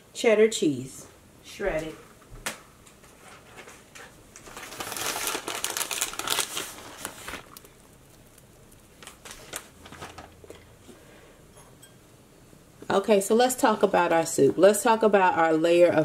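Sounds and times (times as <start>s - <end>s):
shredded cheese rustling: 4.4s - 10.4s.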